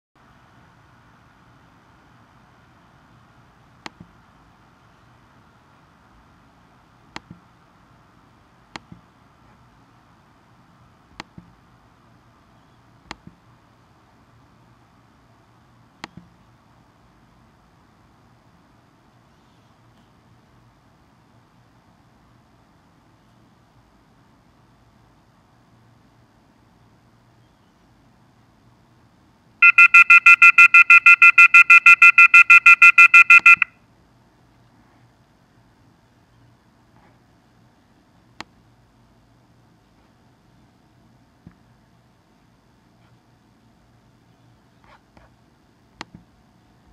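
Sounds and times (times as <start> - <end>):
faint steady hiss: 0.2 - 46.9
rapid electronic alarm beeping: 29.6 - 33.7.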